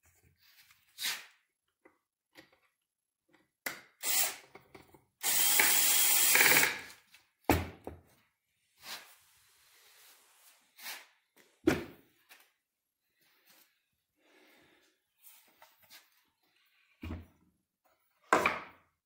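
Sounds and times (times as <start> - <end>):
drill driving a screw: 4.0 - 4.5, 5.2 - 6.9.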